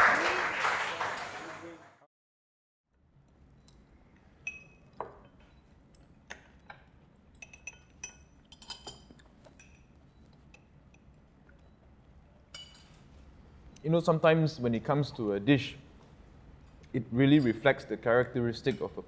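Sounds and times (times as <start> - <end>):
cutlery clinking on plates: 4.4 - 11.1, 12.5 - 13.2.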